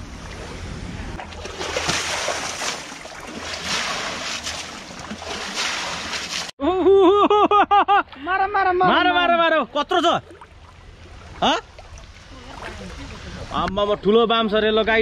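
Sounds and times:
water splashing in stream: 1.2s - 6.5s, 10.2s - 13.6s.

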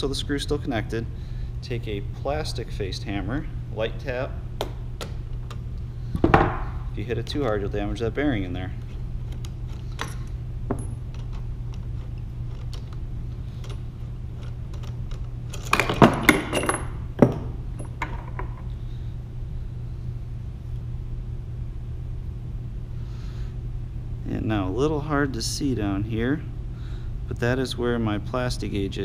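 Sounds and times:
steady low hum: 0.0s - 29.0s
metal parts clinking: 14.4s - 18.6s.

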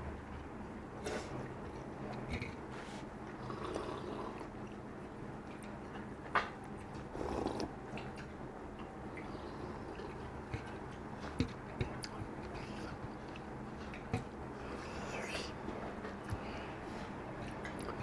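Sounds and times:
chewing with lip smacks: 1.3s - 14.9s.

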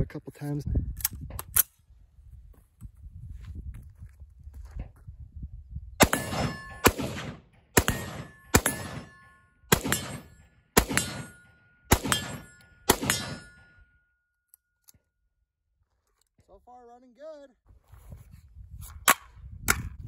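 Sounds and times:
rifle shots: 6.0s - 13.8s
metallic ring: 6.2s - 6.9s, 8.1s - 14.8s.

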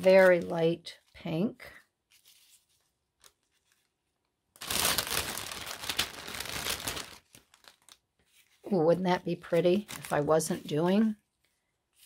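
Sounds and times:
packaging rustling: 2.1s - 8.6s, 9.6s - 10.3s.

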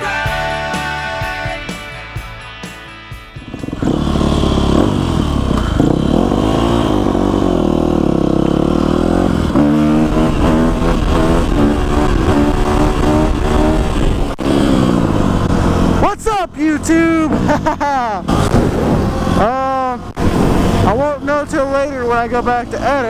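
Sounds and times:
music: 0.0s - 4.8s
dirt bike engine revving: 3.3s - 23.0s.

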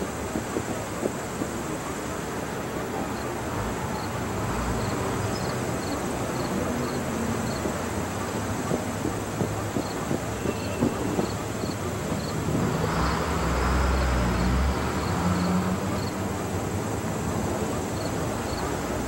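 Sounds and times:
distant train rumble: 0.0s - 19.0s
insect chirping: 4.8s - 7.6s, 9.8s - 13.2s, 17.9s - 18.6s.

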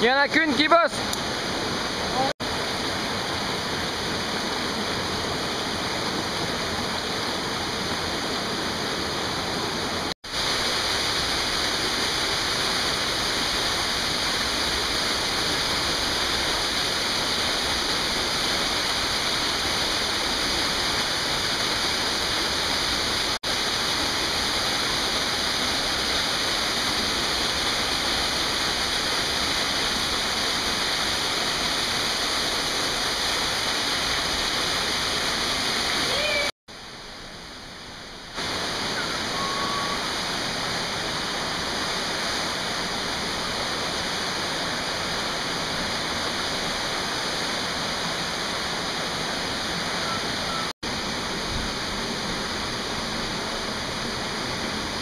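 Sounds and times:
mountain stream rushing: 0.0s - 55.0s.

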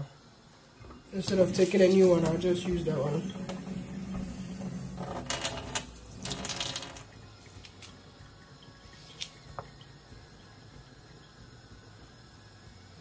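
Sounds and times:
tap water running over hands: 1.2s - 7.1s.

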